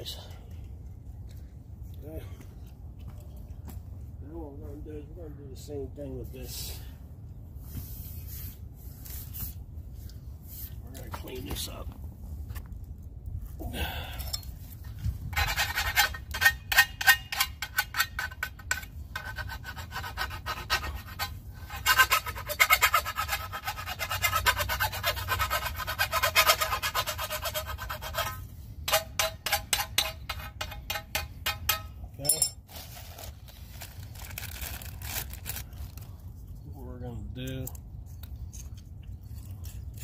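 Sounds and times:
hand tool rasping plastic pipe: 15.2 - 32.0.

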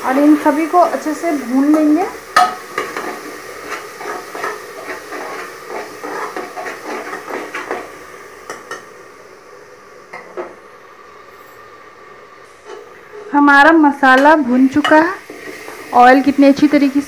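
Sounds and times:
spatula scraping a pot: 2.8 - 7.8.

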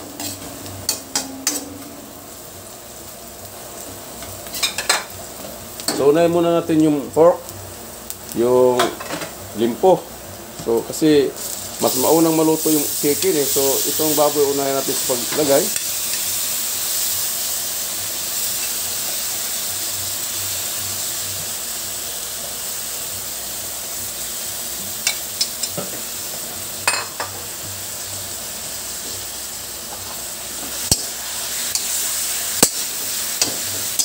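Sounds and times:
meat sizzling in hot oil: 0.0 - 34.0.

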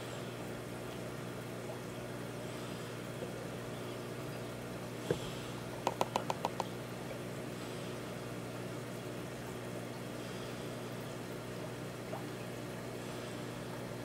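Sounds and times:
aquarium pump humming: 0.0 - 14.0
knock: 5.9 - 6.6.

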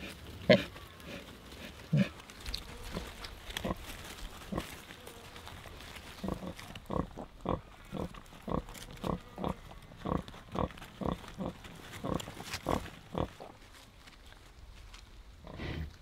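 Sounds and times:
sow grunting softly: 15.4 - 16.0.

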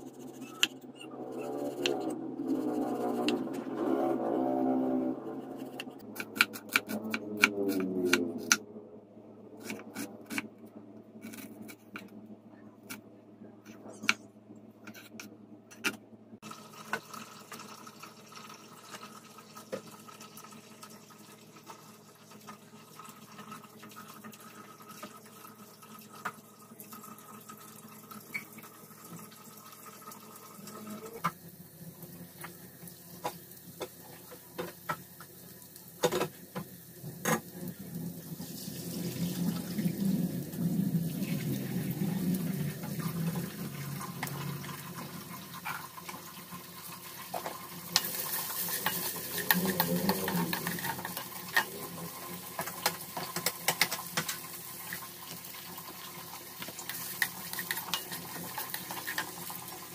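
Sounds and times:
onion sizzling in hot oil: 38.1 - 59.9.

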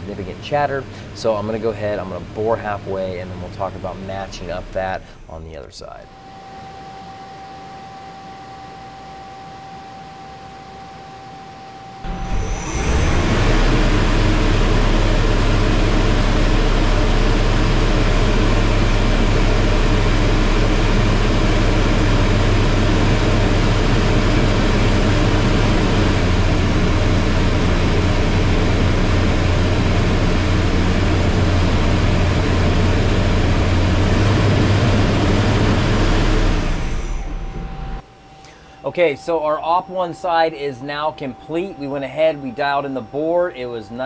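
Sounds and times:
lathe machine noise: 0.0 - 38.2
low machine hum: 0.0 - 44.0.

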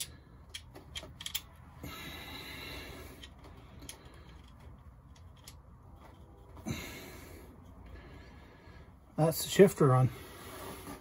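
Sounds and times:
clicks of parts being handled: 0.0 - 1.6, 3.2 - 6.2
soft scraping rustle: 10.0 - 11.0.

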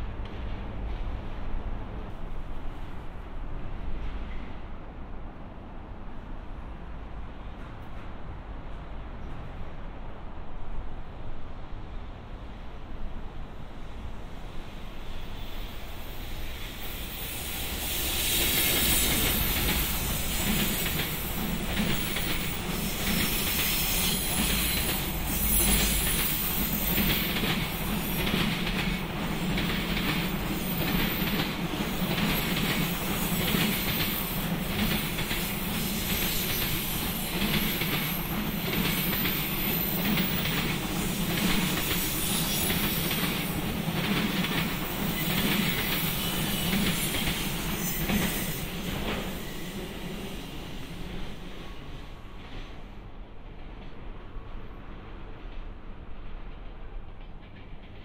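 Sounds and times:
train rumble: 0.0 - 58.0
train wheels clacking over rail joints: 18.4 - 49.6.

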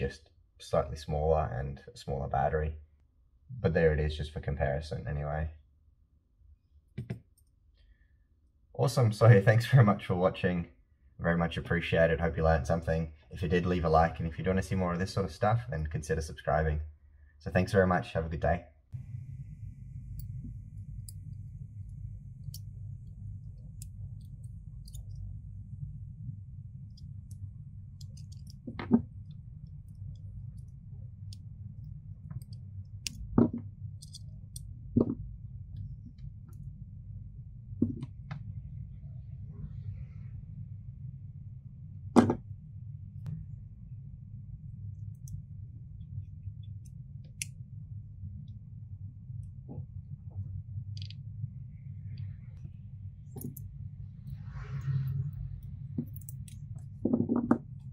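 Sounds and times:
low hum: 0.0 - 57.9
small metal parts clicking: 23.5 - 25.3, 26.9 - 33.3, 33.9 - 34.7, 56.0 - 56.8.

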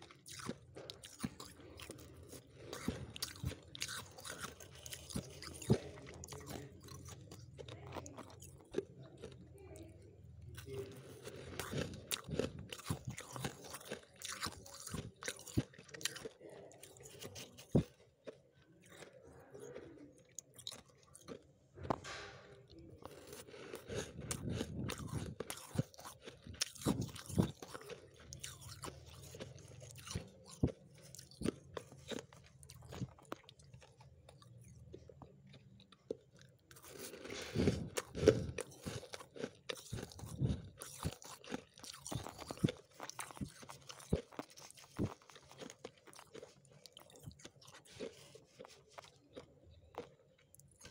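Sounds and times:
frost being chewed: 0.0 - 50.9.

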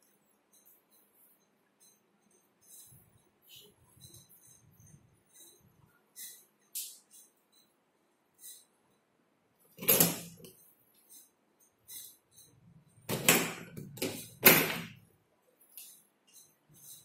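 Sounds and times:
door rattling: 13.1 - 15.0.

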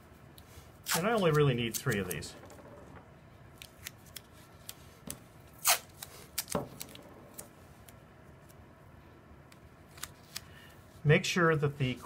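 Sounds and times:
masking tape ripping: 0.8 - 2.1, 5.5 - 7.5.

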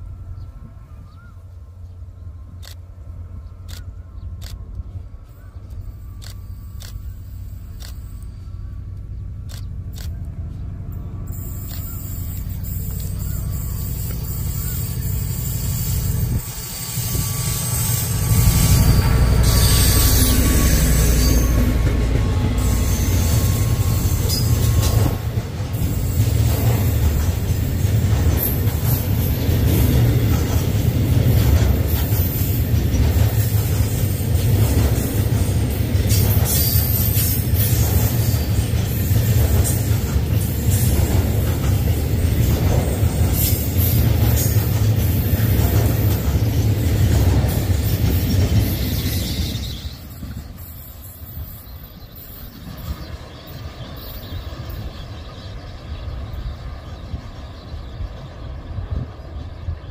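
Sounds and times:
locomotive passing: 0.0 - 59.9
train wheels rumbling on rail: 0.0 - 59.9
wheel squeal: 11.3 - 25.2, 47.8 - 53.0.

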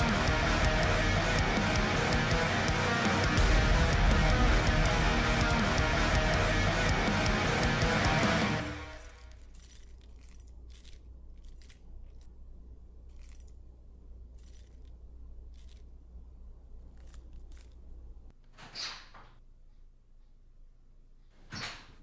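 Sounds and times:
electric guitar music: 0.0 - 8.9
steady low hum: 0.0 - 18.4.

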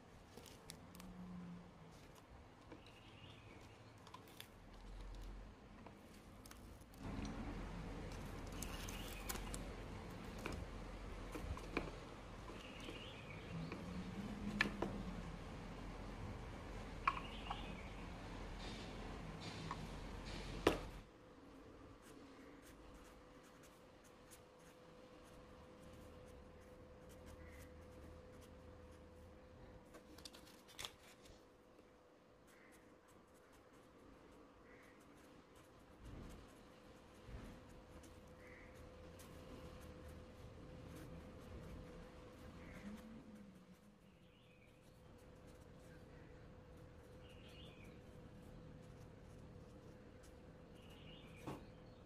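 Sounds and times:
faint steady hum: 0.0 - 52.0
marker scratching on paper: 22.0 - 29.3, 32.4 - 51.6.

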